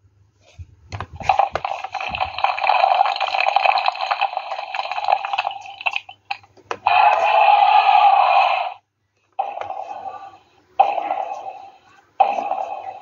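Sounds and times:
electronic dinosaur sound effect: 0:09.4 - 0:13.0.

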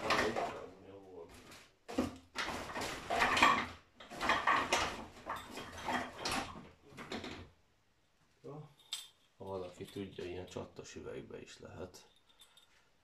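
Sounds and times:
objects clattering and rustling: 0:00.0 - 0:07.5, 0:08.8 - 0:10.7.

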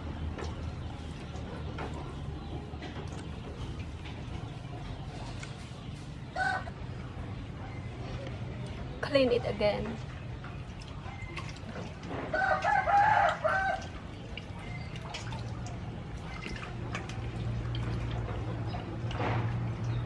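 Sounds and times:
hands washing fish in water: 0:00.0 - 0:20.0
low steady hum: 0:00.0 - 0:20.0
rooster crowing: 0:12.3 - 0:13.9.

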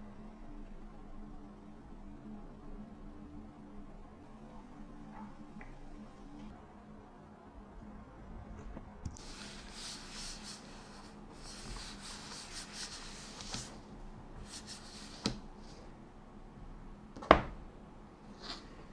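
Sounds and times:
hands rubbing on laptop: 0:09.2 - 0:15.8.

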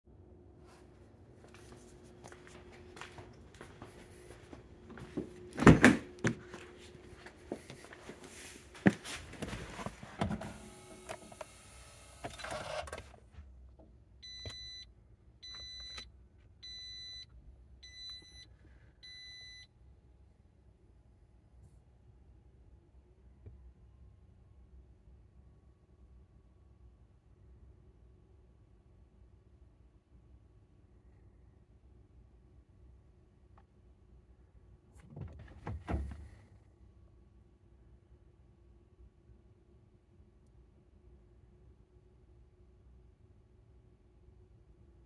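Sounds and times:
car warning chime beeping: 0:14.2 - 0:16.0, 0:16.6 - 0:19.7.

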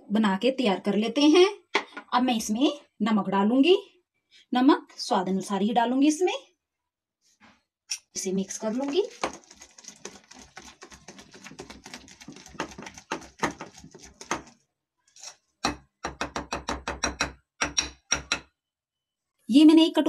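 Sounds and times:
batter beaten by hand in bowl: 0:08.4 - 0:14.6.

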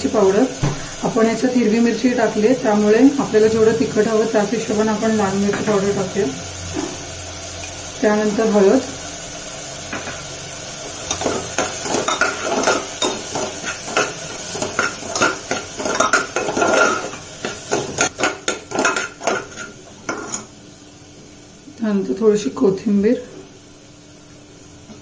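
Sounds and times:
metal spoon scraping pot: 0:11.1 - 0:20.5.

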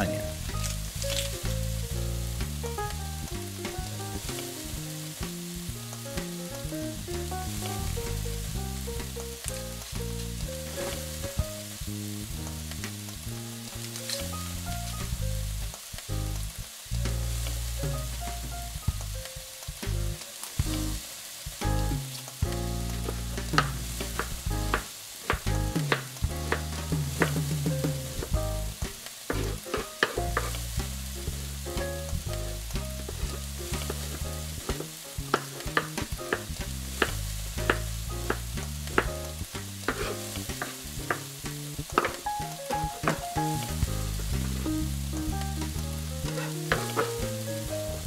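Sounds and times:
sausage sizzling in a pan: 0:00.0 - 0:48.0
knife chopping on cutting board: 0:23.6 - 0:28.2, 0:29.3 - 0:30.5, 0:33.2 - 0:38.4, 0:39.9 - 0:41.3, 0:46.3 - 0:47.2.

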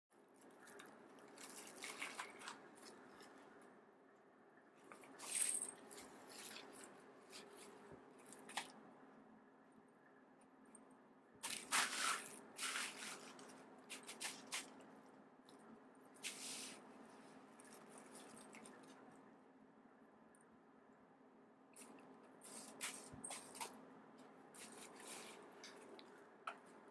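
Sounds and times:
faint low hum: 0:00.2 - 0:26.9
bubble wrap crinkling: 0:00.5 - 0:03.4.

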